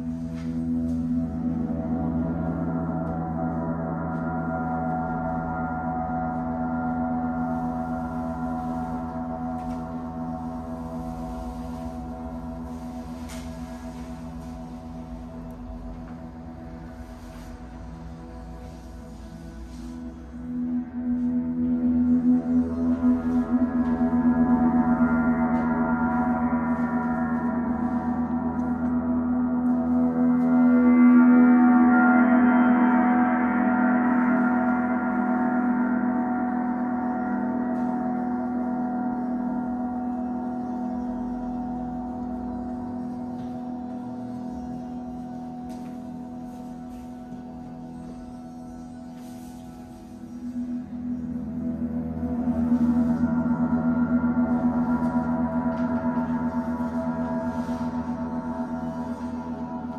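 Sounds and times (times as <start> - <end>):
large gongs ringing: 20.3 - 59.9.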